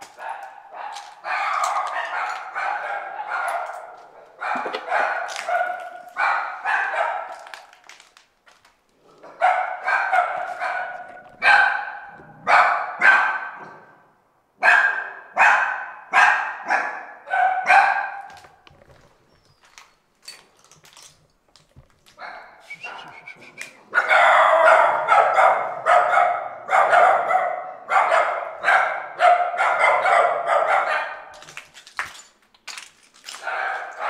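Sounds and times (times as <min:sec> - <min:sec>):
puppies yapping: 0:00.0 - 0:07.7.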